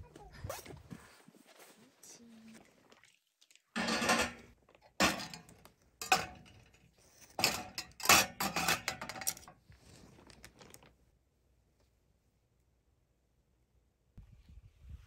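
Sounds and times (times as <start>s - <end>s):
mugs and utensils clattering in rack: 3.8s - 9.6s.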